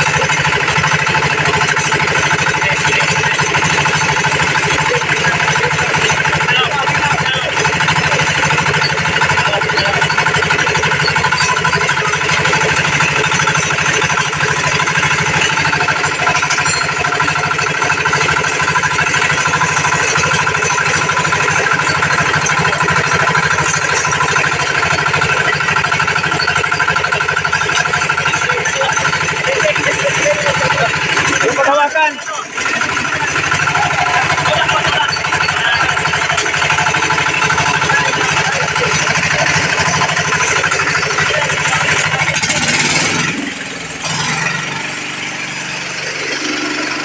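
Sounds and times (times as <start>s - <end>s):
fibre stripping machine running: 0.0s - 47.0s.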